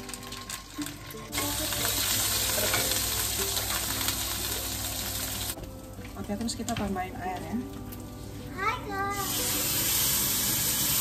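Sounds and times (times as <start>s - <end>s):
paste sizzling in hot oil: 0.0s - 5.6s, 9.1s - 11.0s.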